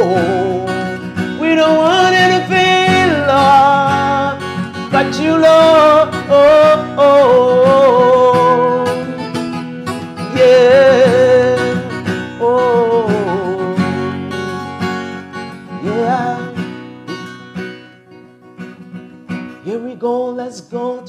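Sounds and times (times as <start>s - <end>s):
man singing wordless notes: 0.0s - 14.0s, 15.7s - 16.9s, 19.5s - 21.0s
strummed acoustic guitar: 0.0s - 21.0s.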